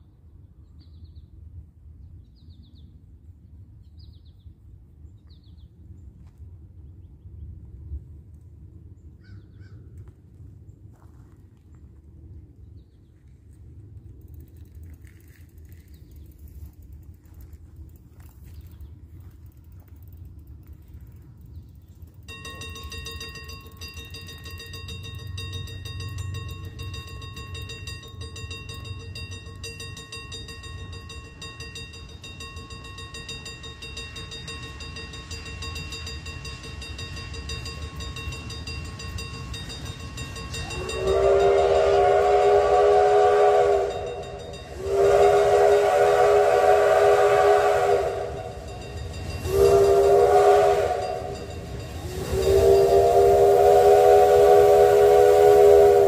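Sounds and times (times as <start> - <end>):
low rumble of steam train: 0.0 - 56.0
steam locomotive chime whistle: 22.3 - 56.0.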